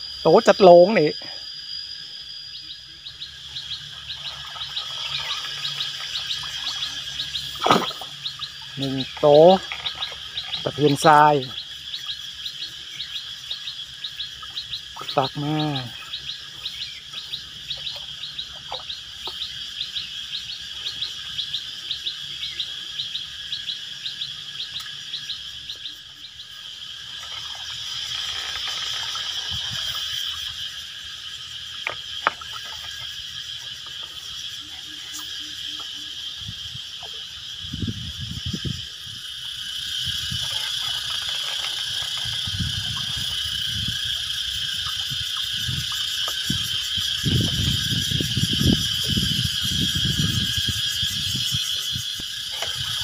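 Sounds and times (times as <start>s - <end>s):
high insect buzz: 0.0s - 53.0s
water splashing: 4.2s - 11.1s, 27.0s - 30.6s.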